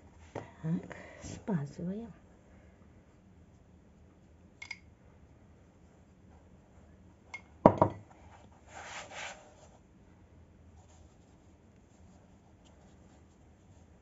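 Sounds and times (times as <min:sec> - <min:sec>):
glass set down on table: 0:07.7 - 0:08.0.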